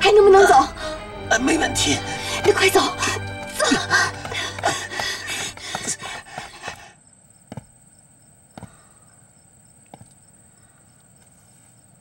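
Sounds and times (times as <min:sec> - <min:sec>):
music: 0:00.0 - 0:06.4
crickets chirping: 0:00.0 - 0:12.0.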